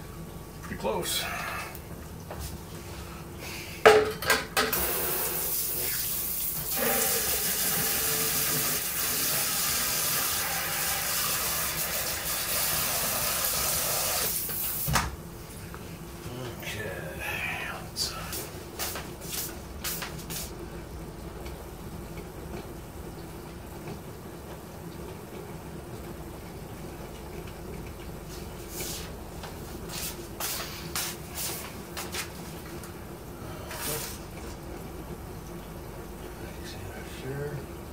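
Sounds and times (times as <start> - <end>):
running water hiss: 4.8 - 15.0, 28.3 - 31.9, 33.5 - 34.4
steady low hum: 15.1 - 37.9.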